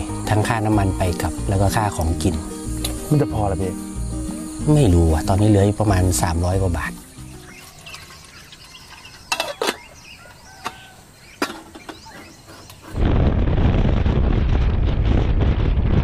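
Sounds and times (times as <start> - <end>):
bird calls: 1.8 - 13.0
metal kettle clinking: 7.8 - 9.9
wind noise: 11.8 - 16.0.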